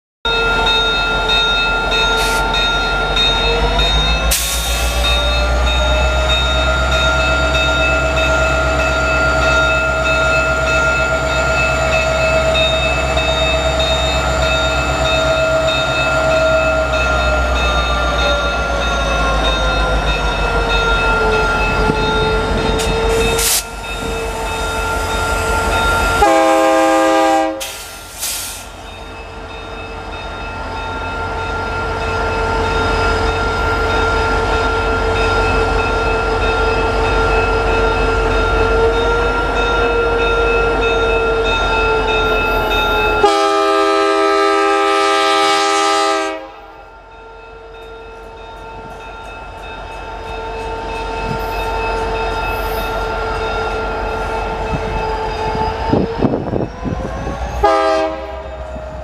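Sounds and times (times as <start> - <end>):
diesel locomotive engine: 0.2 - 59.0
locomotive horn blast: 25.4 - 27.8, 43.1 - 46.7, 57.6 - 58.7.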